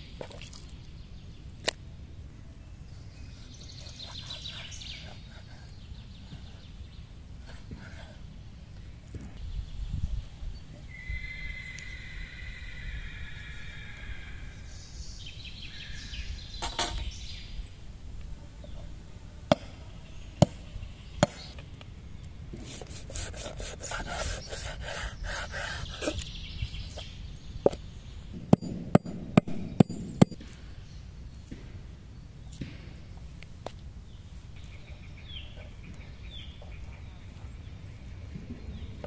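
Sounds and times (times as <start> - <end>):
knife slicing meat: 22.8 - 26.0.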